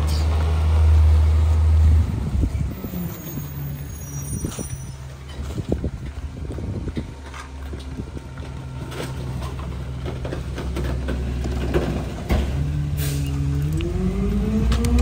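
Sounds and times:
garbage truck engine running: 0:05.0 - 0:15.0.

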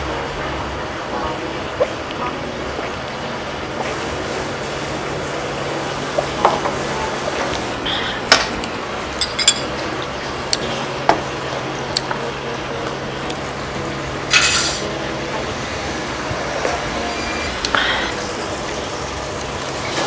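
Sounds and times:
steady low hum: 0:00.0 - 0:20.0
fork clinking on ceramic dishes: 0:09.2 - 0:09.8.

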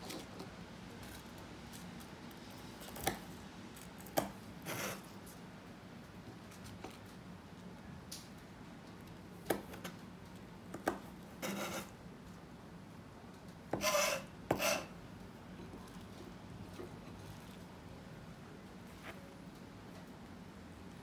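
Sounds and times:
knife scraping across board: 0:04.6 - 0:05.1, 0:11.4 - 0:11.9, 0:13.8 - 0:14.9.

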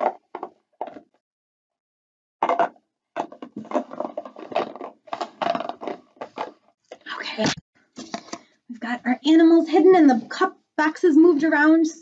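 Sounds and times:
plastic cups knocking: 0:00.0 - 0:01.0, 0:02.4 - 0:08.4
plastic boxes clattering and rubbing: 0:00.0 - 0:01.2, 0:02.4 - 0:08.4.

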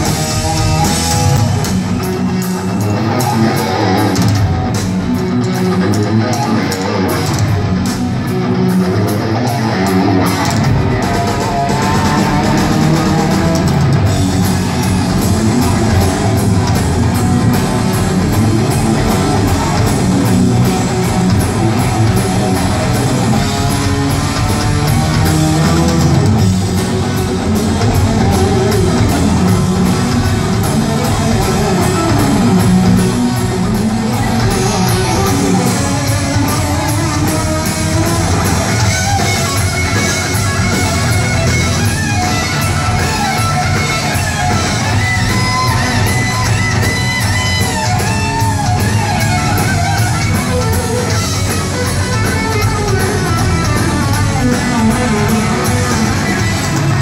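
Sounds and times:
hard rock band playing: 0:00.0 - 0:57.0
melodic electric guitar lines: 0:00.0 - 0:57.0.

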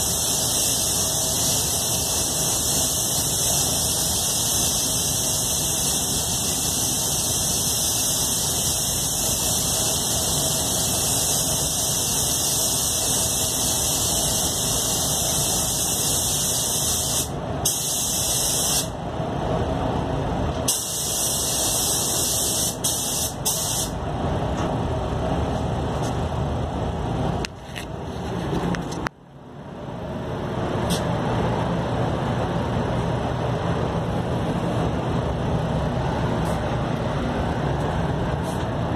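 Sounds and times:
spray gun air hiss: 0:00.0 - 0:19.0, 0:20.6 - 0:24.0
ventilation rumble: 0:00.0 - 0:38.9.

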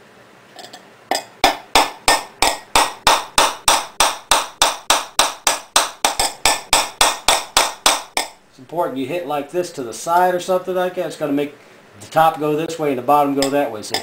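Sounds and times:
metal spoon tapping rod: 0:13.4 - 0:14.0.

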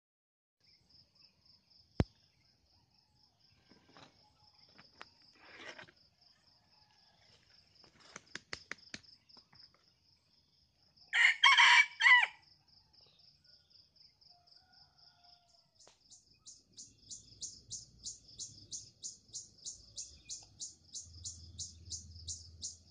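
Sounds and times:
rooster crowing: 0:11.1 - 0:12.4, 0:14.3 - 0:15.7
high pulsing chirp: 0:16.1 - 0:22.9.

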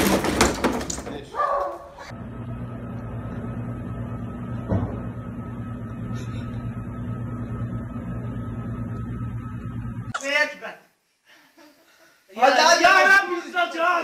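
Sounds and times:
low electrical hum: 0:00.0 - 0:14.0
faint high whine: 0:02.2 - 0:10.2.

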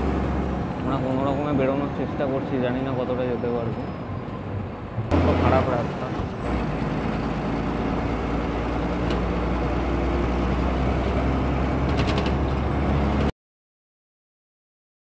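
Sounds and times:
diesel bus engine droning: 0:00.0 - 0:13.3
bus body rattle: 0:11.8 - 0:12.6.

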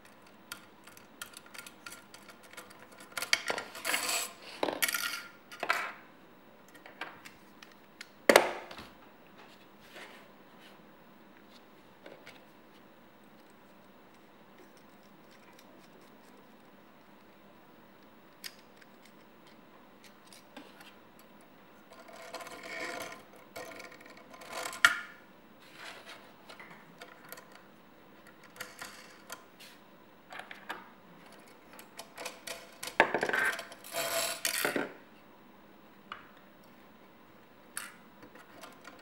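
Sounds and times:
small parts clicking and rattling: 0:00.0 - 0:05.9, 0:27.0 - 0:29.4.

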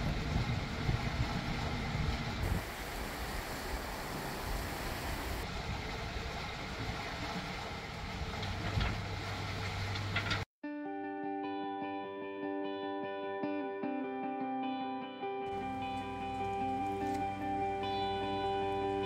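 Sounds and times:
boat engine drone: 0:00.0 - 0:10.4, 0:15.5 - 0:19.0
hiss of wind and water: 0:00.0 - 0:10.4, 0:15.5 - 0:19.0.

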